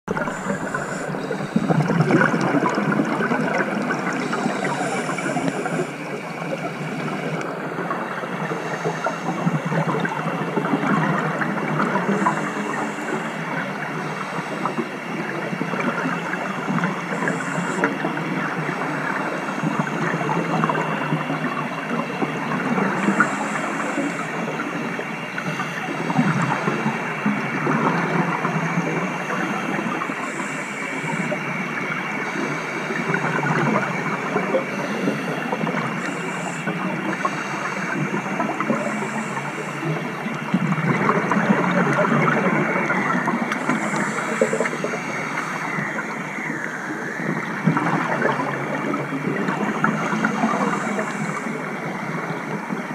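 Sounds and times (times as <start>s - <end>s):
bubbling exhaled breath underwater: 0.1s - 52.9s.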